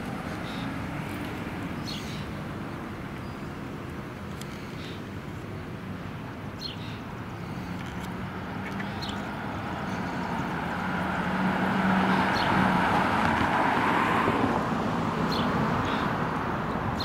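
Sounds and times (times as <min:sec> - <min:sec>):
tyre and road noise: 0:00.0 - 0:17.0
vehicle engine humming: 0:00.0 - 0:17.0.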